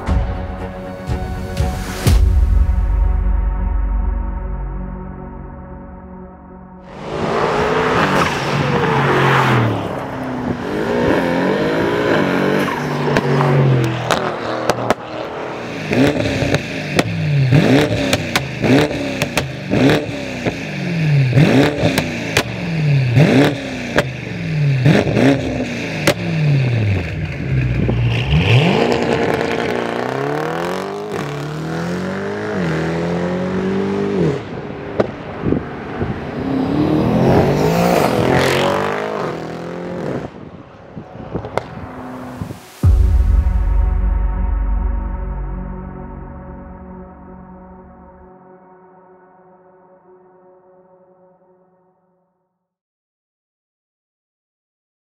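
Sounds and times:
car engine revving: 0:06.8 - 0:40.5
car accelerating hard: 0:06.9 - 0:40.5
exhaust pops: 0:18.0 - 0:19.6.

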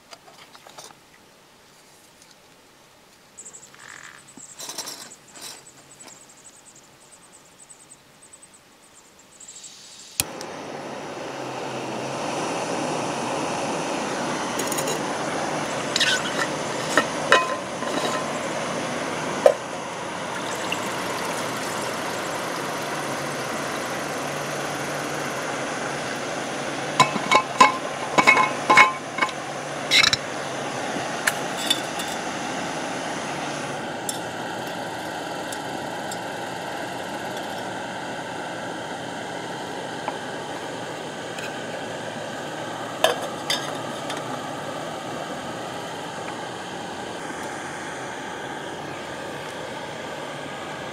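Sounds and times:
outdoor background hiss: 0:00.0 - 0:50.9
metal cookware clinking: 0:16.0 - 0:18.4, 0:27.0 - 0:30.2, 0:31.6 - 0:32.2, 0:43.0 - 0:44.2.

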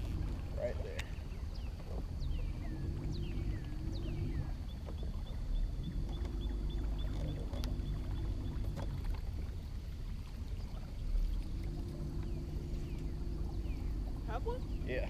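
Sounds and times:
electric trolling motor hum: 0:00.0 - 0:15.0
bird chirping: 0:01.0 - 0:08.8, 0:12.1 - 0:15.0.

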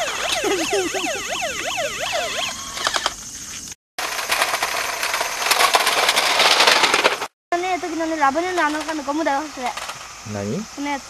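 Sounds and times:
toy car electronic siren: 0:00.0 - 0:03.1
toy car crackling on asphalt: 0:04.0 - 0:07.3, 0:07.9 - 0:10.1.

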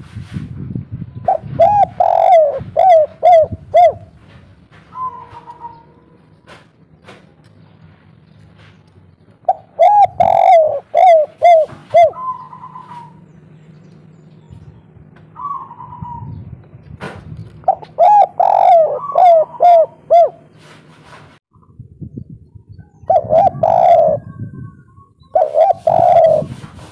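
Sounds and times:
dove cooing: 0:01.2 - 0:06.3, 0:09.4 - 0:13.3, 0:15.2 - 0:16.4, 0:17.6 - 0:20.7, 0:23.0 - 0:26.9.

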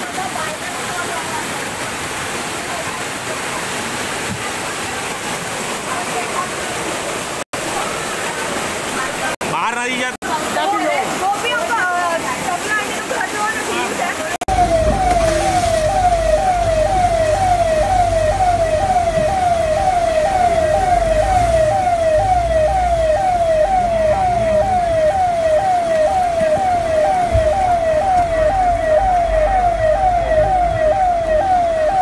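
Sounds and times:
electronic siren wailing: 0:14.0 - 0:32.0.

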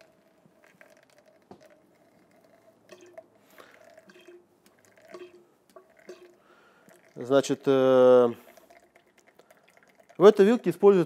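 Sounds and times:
oil dripping into glass jar: 0:00.0 - 0:11.0
drops plinking: 0:02.3 - 0:10.2.

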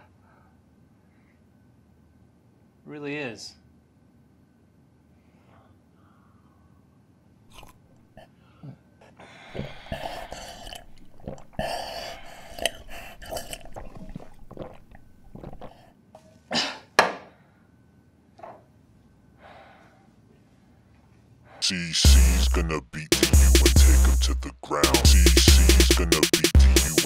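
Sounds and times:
quiet breaths: 0:00.0 - 0:01.8, 0:05.0 - 0:07.1, 0:08.2 - 0:13.3, 0:19.2 - 0:21.7
coughing gasps: 0:09.4 - 0:10.9, 0:16.5 - 0:16.9
people slurping coffee: 0:09.5 - 0:15.9.

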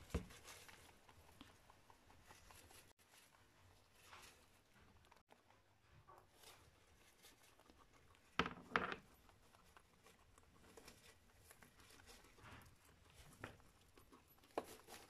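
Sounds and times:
guinea pigs crunching hay: 0:00.0 - 0:08.4, 0:09.0 - 0:15.0.

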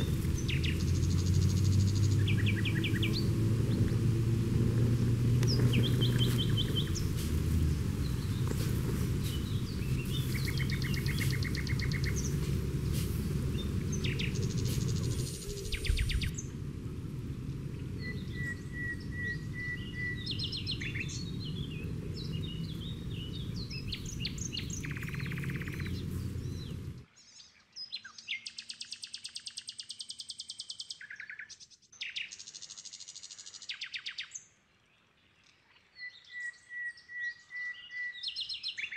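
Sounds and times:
low rumble: 0:00.0 - 0:27.0
pulsed buzzing trills: 0:00.0 - 0:27.0
birds calling and chirping: 0:00.0 - 0:34.4.

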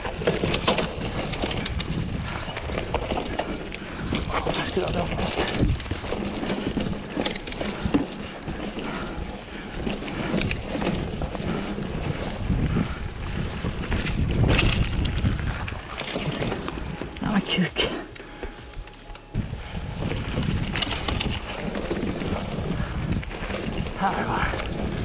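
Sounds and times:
wind on camera microphone: 0:00.0 - 0:07.2, 0:10.2 - 0:17.0, 0:19.3 - 0:25.0
bike knocks and rattles: 0:00.0 - 0:17.2, 0:18.3 - 0:25.0
mountain bike rolling over dirt: 0:00.0 - 0:25.0.

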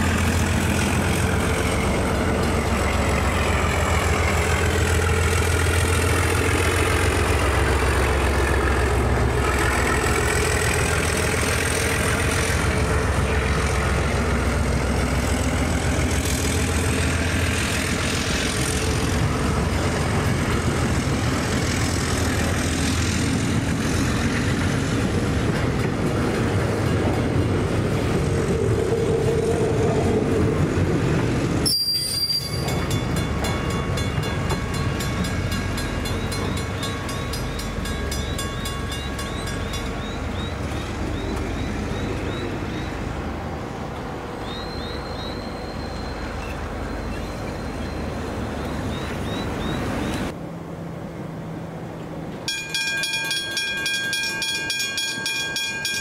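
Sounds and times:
freight train rolling on rails: 0:00.0 - 0:56.0
crossing warning bell ringing: 0:31.6 - 0:40.7, 0:52.4 - 0:56.0.

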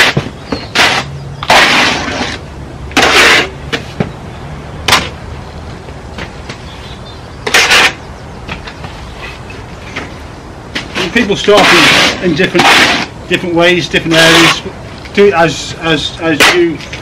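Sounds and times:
trowel scraping render: 0:00.0 - 0:04.0, 0:07.4 - 0:08.0, 0:10.8 - 0:14.7, 0:15.5 - 0:17.0.

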